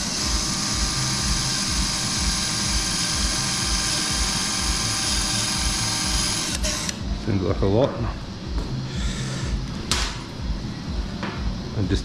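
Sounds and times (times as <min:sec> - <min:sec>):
surgical power drill whining: 0:00.0 - 0:07.1.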